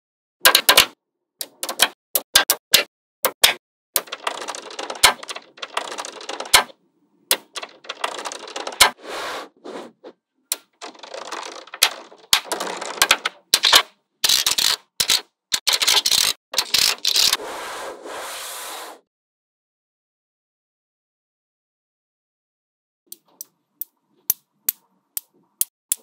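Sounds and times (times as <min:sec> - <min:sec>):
magnetic balls clicking and rattling: 0:00.4 - 0:06.7, 0:07.3 - 0:09.0, 0:10.5 - 0:17.4.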